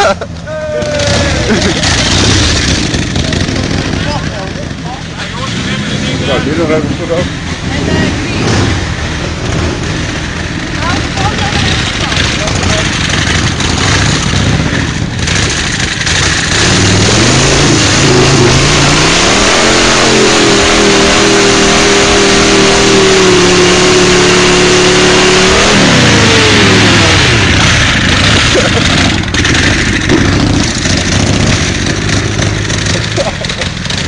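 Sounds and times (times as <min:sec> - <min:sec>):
motorcycle engine revving hard: 0:00.0 - 0:34.0.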